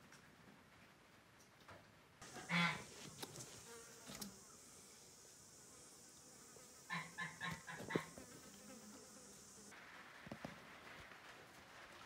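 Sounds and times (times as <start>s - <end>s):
high insect buzz: 2.2s - 9.7s.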